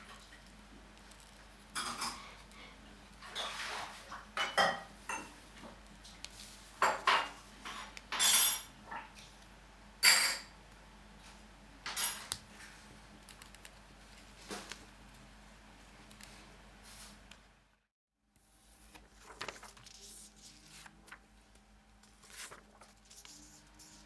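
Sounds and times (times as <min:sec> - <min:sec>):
paper scraping on wooden table: 0:18.8 - 0:21.2, 0:22.0 - 0:24.0.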